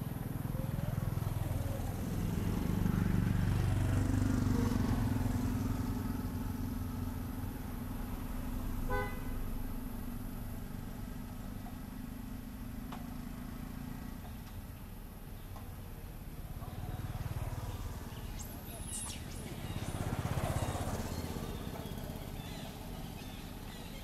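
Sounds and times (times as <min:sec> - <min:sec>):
vehicle engine passing: 0:00.1 - 0:14.2, 0:16.3 - 0:24.0
car horn toot: 0:08.9 - 0:09.4.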